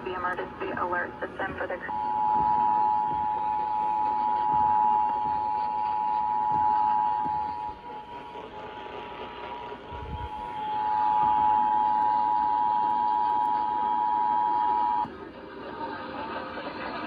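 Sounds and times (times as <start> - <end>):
two-tone alert signal: 10.1 - 15.1.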